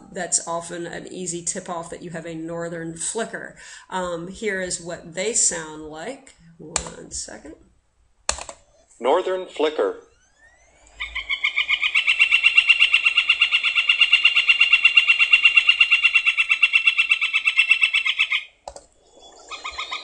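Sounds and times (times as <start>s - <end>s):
bird long call of repeated notes: 10.0s - 20.0s.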